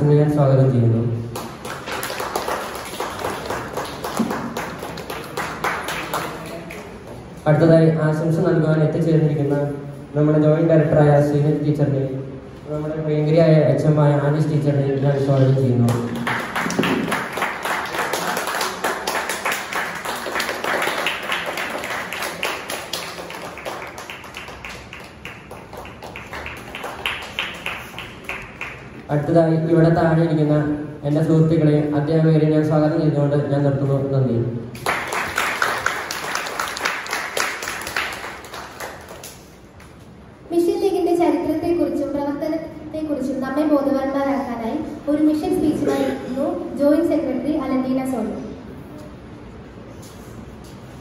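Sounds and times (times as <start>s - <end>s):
audience clapping: 1.3s - 7.4s, 15.8s - 29.1s, 34.7s - 40.0s.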